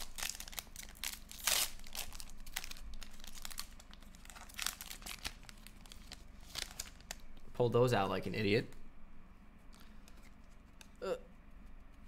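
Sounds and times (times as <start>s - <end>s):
plastic wrapper crinkling and tearing: 0.0s - 7.5s.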